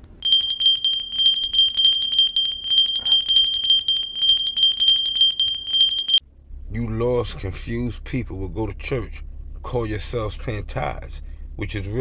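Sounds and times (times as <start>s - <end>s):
high bell-like ringing: 0.0s - 6.2s
metallic coin clinks: 0.0s - 6.2s.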